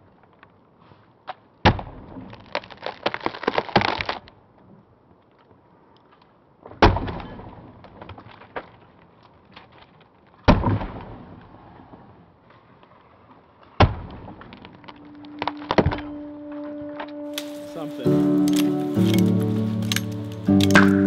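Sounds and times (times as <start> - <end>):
axe chopping tree trunk: 1.6 - 2.3, 10.4 - 11.2, 13.8 - 14.4, 17.4 - 21.0
crackling ticks: 17.1 - 21.0.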